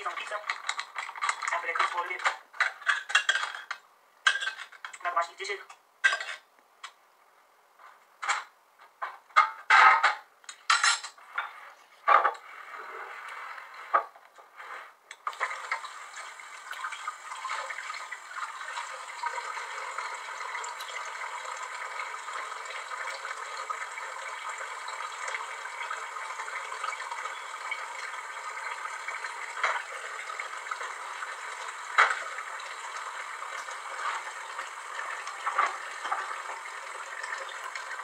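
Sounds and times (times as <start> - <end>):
water running from tap: 15.3 - 38.0.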